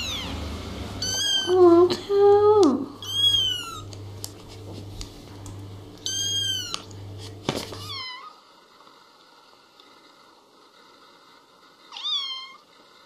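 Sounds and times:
low steady hum: 0.0 - 13.0
kitten meowing: 1.0 - 1.6, 3.0 - 3.9, 6.0 - 6.9, 11.9 - 12.6.

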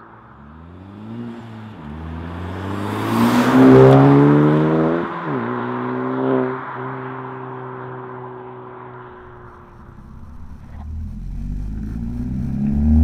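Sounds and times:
car exhaust accelerating hard: 9.2 - 13.0.

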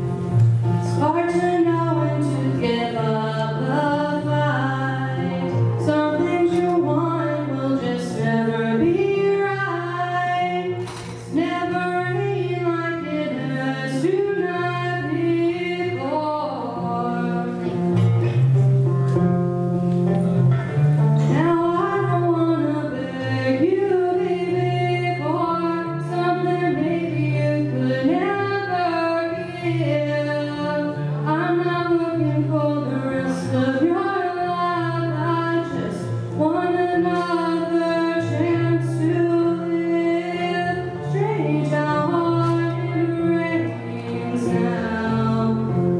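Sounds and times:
low backing chords: 0.0 - 45.9
girl singing pop song: 0.8 - 18.2, 21.2 - 45.9.

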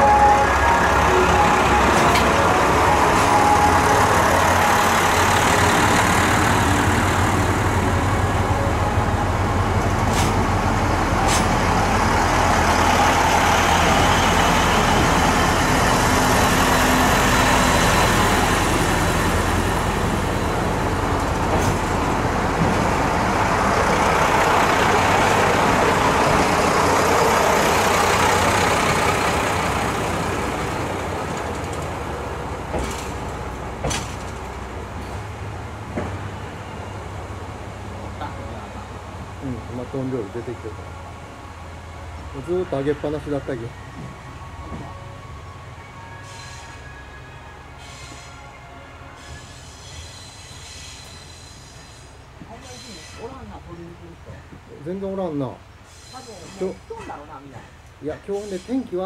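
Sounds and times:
train wheel noise: 0.0 - 47.0
diesel engines rumbling: 0.0 - 59.0
wheels clicking on rails: 27.7 - 35.3.

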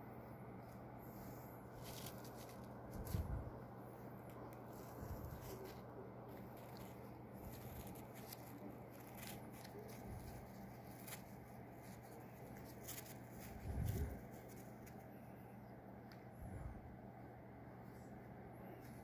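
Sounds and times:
faint steady hum: 0.0 - 19.0
light rustling: 0.7 - 15.1.

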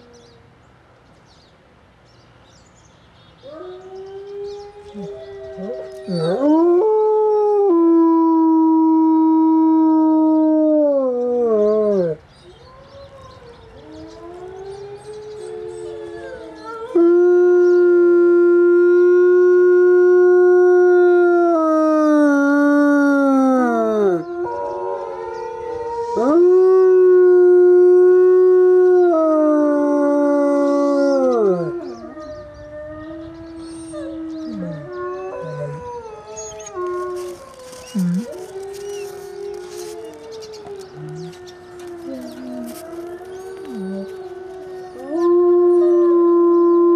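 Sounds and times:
wolf howling: 12.8 - 46.9
distant wolf howls: 28.0 - 46.9.

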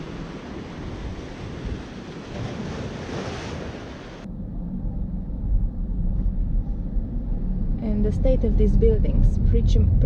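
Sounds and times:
sea surf washing ashore: 0.0 - 4.3
wind buffeting microphone: 0.0 - 4.3.

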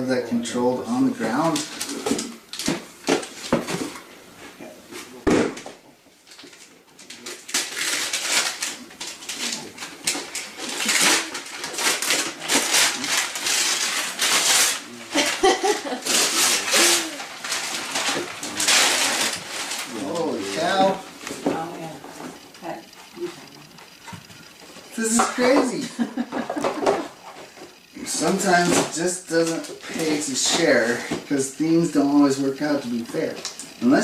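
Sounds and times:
wrapping paper tearing: 6.3 - 21.4, 28.0 - 34.0.

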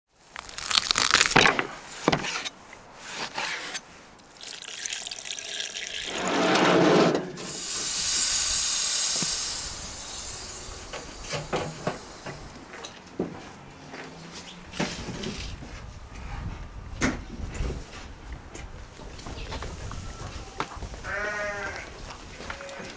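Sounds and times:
rushing noise: 6.0 - 12.8
sizzling on hot steel plate: 7.5 - 12.5.

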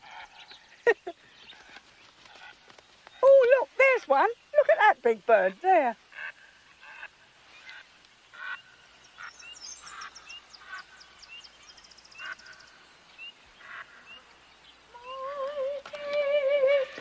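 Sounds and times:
birds making harsh calls: 6.0 - 14.9.

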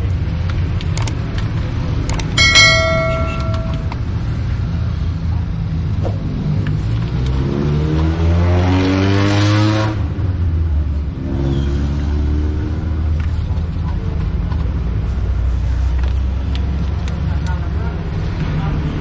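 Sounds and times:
engine running steadily: 0.0 - 7.3
road traffic rumble: 0.0 - 19.0.

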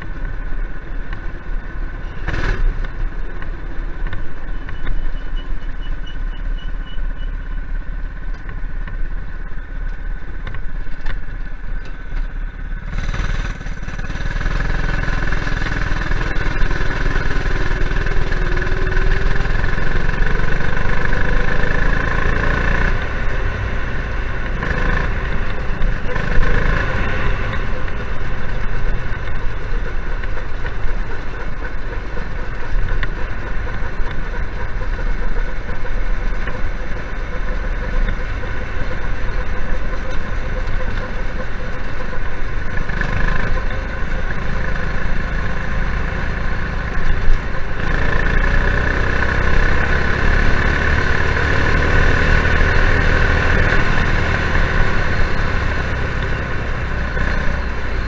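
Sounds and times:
go-kart engine running: 0.0 - 58.0.

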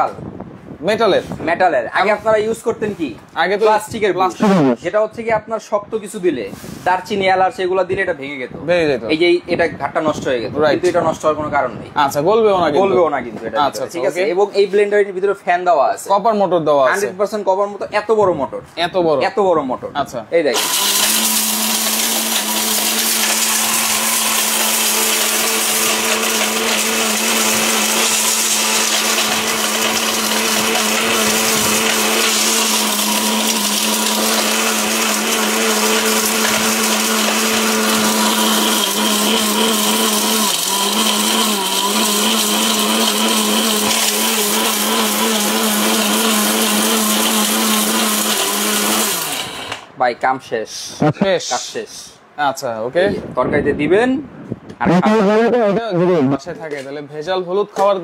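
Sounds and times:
electric blender grinding: 20.5 - 49.9.

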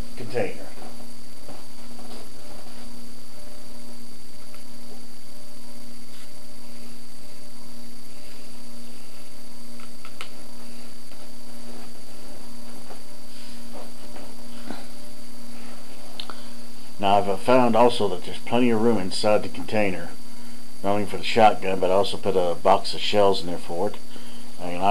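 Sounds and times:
electrical mains hum: 0.0 - 24.9.

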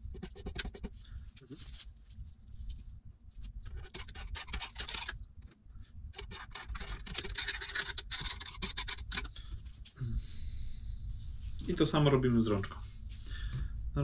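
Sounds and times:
small tool scraping metal: 3.7 - 5.2, 6.2 - 9.4.

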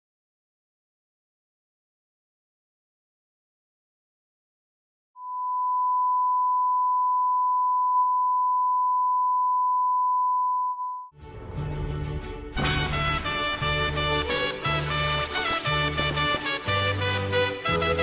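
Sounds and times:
theme music: 11.1 - 18.0.

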